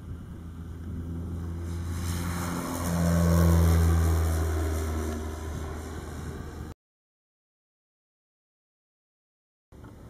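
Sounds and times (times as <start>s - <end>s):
propeller plane humming: 0.0s - 6.8s.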